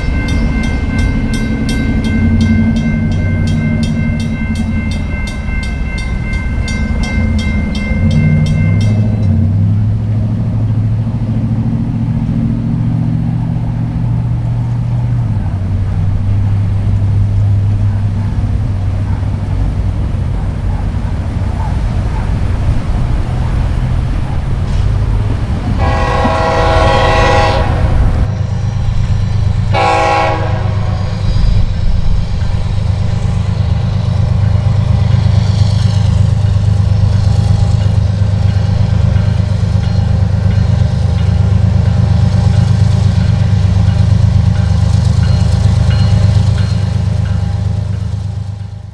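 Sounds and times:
train low rumble: 0.0s - 48.9s
locomotive horn blasts: 25.6s - 28.3s, 29.7s - 31.2s.

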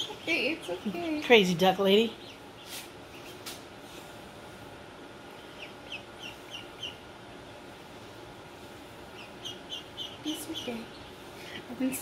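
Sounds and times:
duckling peeping: 0.0s - 3.6s, 5.3s - 7.3s, 8.9s - 11.7s.

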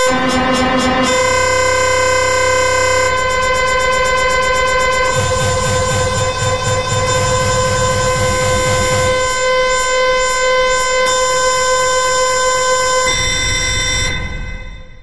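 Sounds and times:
dense synthesized drone: 0.0s - 15.0s.

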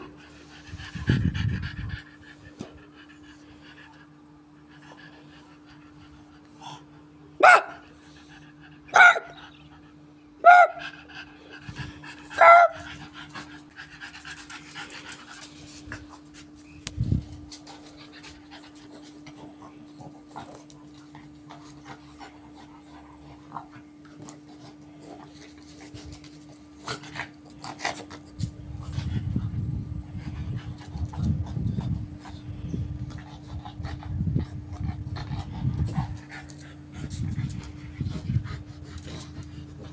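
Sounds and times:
dog barking: 7.4s - 7.8s, 8.9s - 9.4s, 10.4s - 10.8s, 12.4s - 12.8s.

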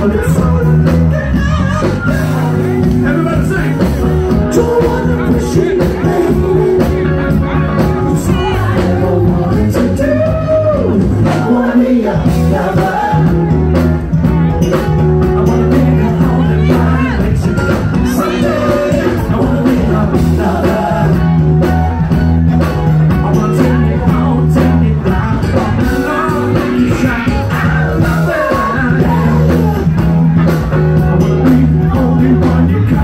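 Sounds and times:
bass line: 0.0s - 33.0s
drum beat: 0.0s - 33.0s
electric guitar: 0.0s - 33.0s
woman singing: 15.5s - 21.4s.

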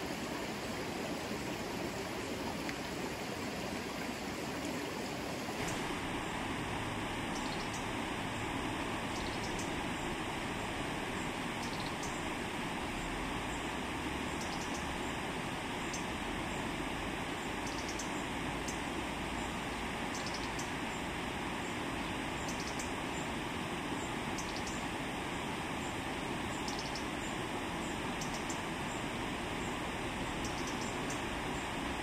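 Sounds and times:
river water rushing: 0.0s - 11.6s.

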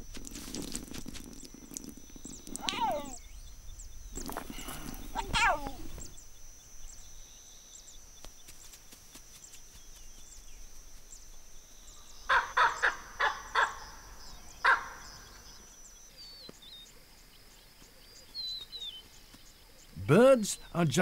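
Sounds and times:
faint chirps: 0.0s - 21.0s
harsh animal calls: 1.7s - 3.2s, 4.2s - 6.1s, 12.3s - 15.4s.

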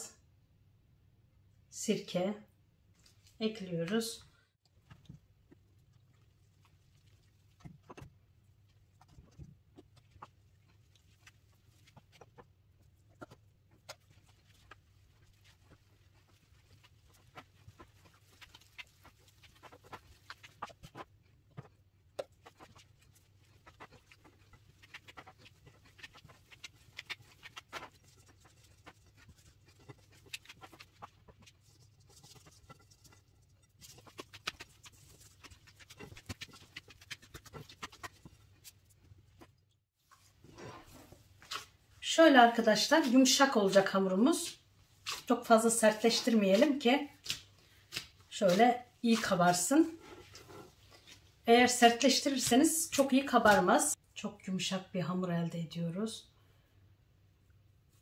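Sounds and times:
dough squishing and slapping: 2.9s - 54.0s.

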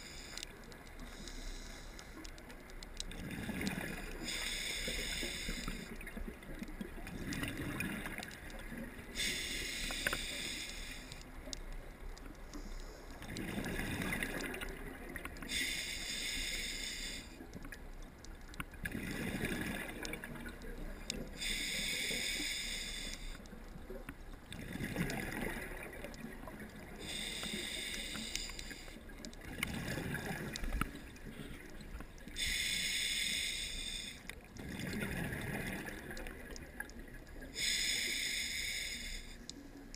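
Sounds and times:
regulator inhale hiss: 0.0s - 2.4s, 3.9s - 6.2s, 9.0s - 11.6s, 12.4s - 13.2s, 15.4s - 17.5s, 21.2s - 23.5s, 27.0s - 29.1s, 32.3s - 34.4s, 37.4s - 39.6s
gurgle of exhaled bubbles: 3.1s - 4.1s, 6.0s - 8.9s, 13.3s - 15.2s, 18.8s - 20.6s, 24.5s - 26.9s, 29.4s - 31.0s, 34.6s - 36.9s.

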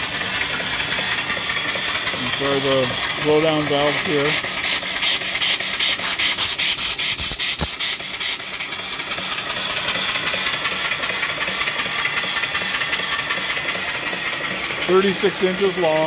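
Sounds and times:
steam hissing and puffing: 0.0s - 16.0s.

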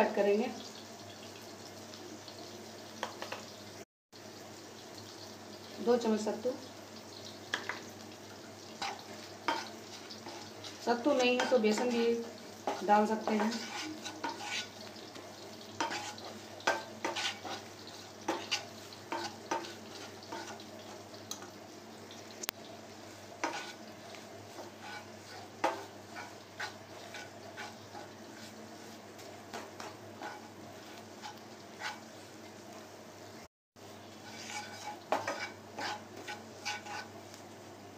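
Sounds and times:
frying sizzle: 0.0s - 37.9s
wooden spatula scraping a pan: 8.8s - 15.2s, 15.8s - 21.0s, 23.4s - 32.6s, 34.1s - 37.4s.

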